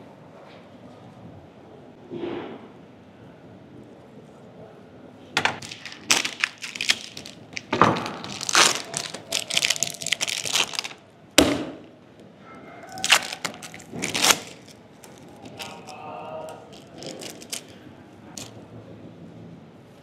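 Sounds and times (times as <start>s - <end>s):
plastic wrapping crinkling: 5.6s - 11.1s, 12.9s - 18.6s.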